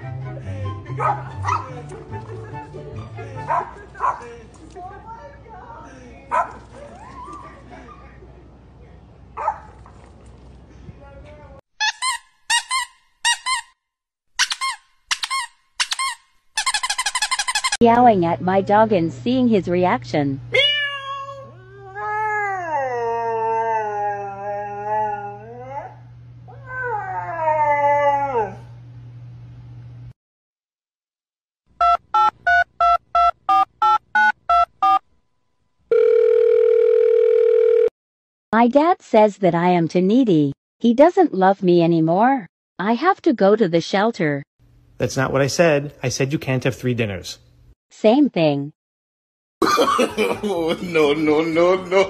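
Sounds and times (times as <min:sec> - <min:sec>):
steady telephone line tone: 0:35.9 - 0:37.9.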